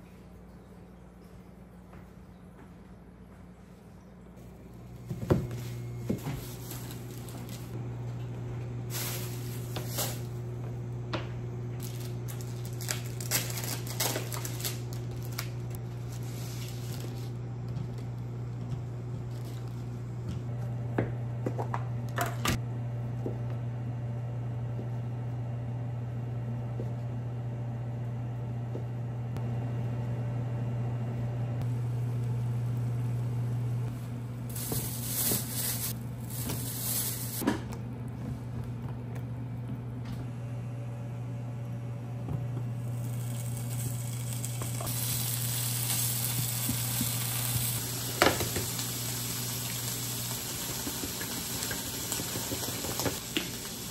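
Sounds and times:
steady low hum: 0.0 - 51.6
water boiling in a frying pan: 42.8 - 53.9
bacon sizzling in a pan: 43.0 - 53.9.

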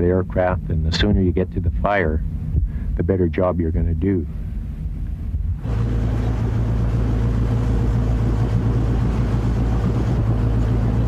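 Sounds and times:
motorboat engine drone: 0.0 - 11.0
water rushing along hull: 3.5 - 11.0.

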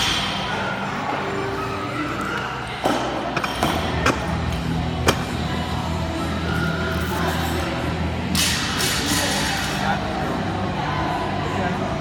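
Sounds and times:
gym background noise: 0.0 - 12.0.

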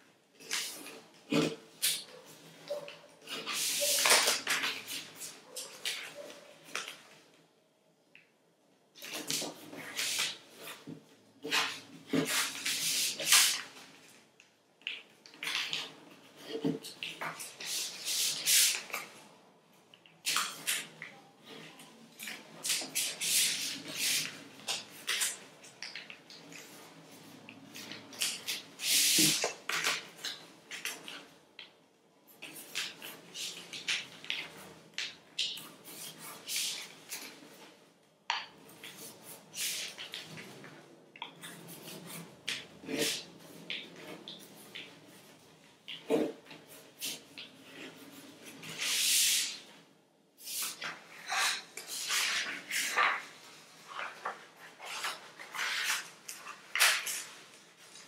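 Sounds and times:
paper folding and rustling: 0.4 - 7.3, 9.0 - 19.3, 20.2 - 31.4, 32.4 - 37.8, 38.6 - 49.7, 50.4 - 58.0
paper rustling and crinkling: 3.3 - 7.2, 50.5 - 58.0
paper crackle: 50.6 - 58.0.

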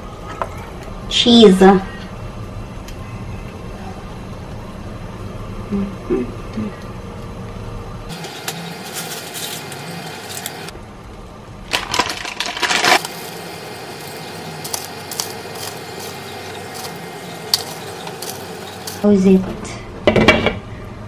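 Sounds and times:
plastic packet crinkling: 11.7 - 13.4.

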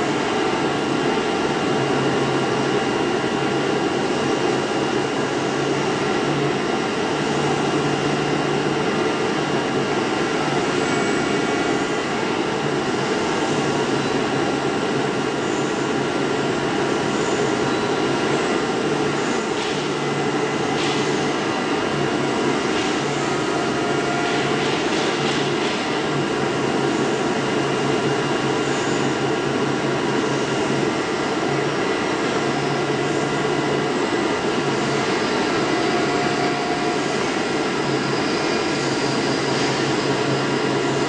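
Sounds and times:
cutting machine running: 29.2 - 41.0.

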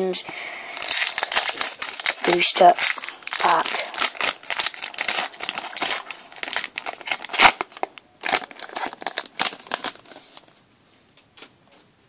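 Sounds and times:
foil wrapper crinkling and tearing: 0.3 - 10.5.

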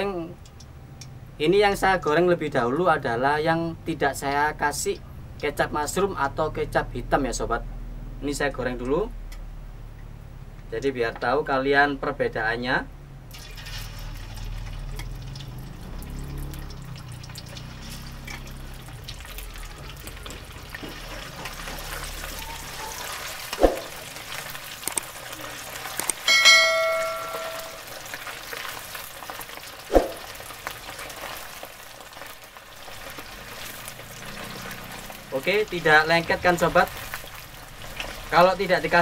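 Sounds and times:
meat sizzling in hot oil: 13.3 - 39.0
loud metallic clang: 26.3 - 27.9
metal ladle knocking on pan: 26.3 - 27.9.

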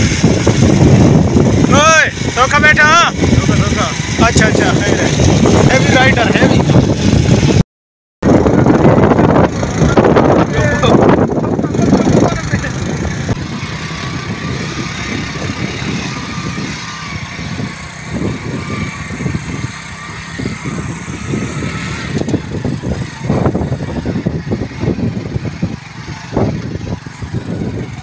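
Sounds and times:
motorcycle engine running: 0.0 - 7.6, 8.2 - 28.0
wind buffeting on microphone: 0.0 - 7.6, 8.2 - 28.0.

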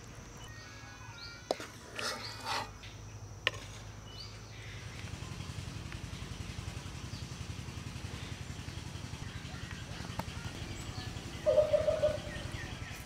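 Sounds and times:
engine running with pulsing drone: 4.4 - 13.0.

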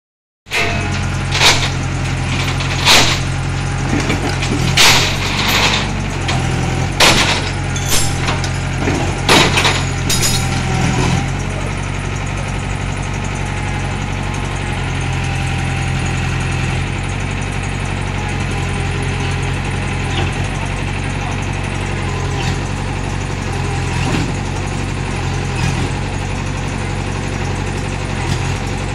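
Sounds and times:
metallic knocks and clanks: 0.5 - 11.2
excavator diesel engine running: 0.5 - 28.9.

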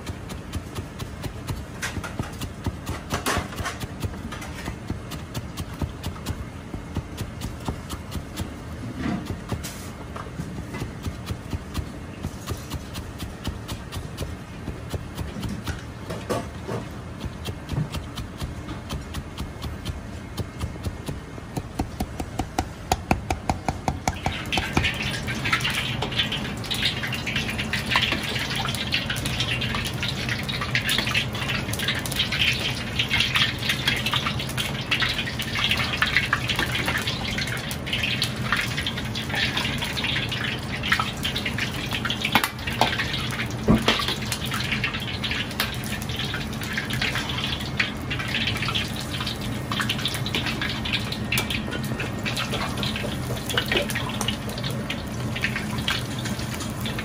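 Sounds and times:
cleaver chopping on cutting board: 10.5 - 24.9.

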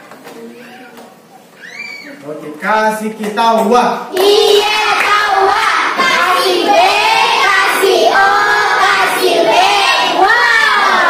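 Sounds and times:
children singing together: 4.1 - 11.0.

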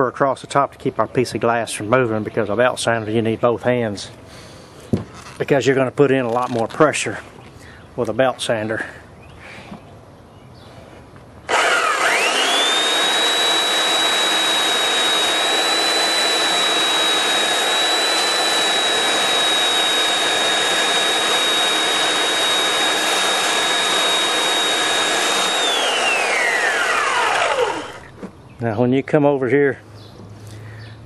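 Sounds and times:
belt sander motor whine: 11.5 - 28.3.

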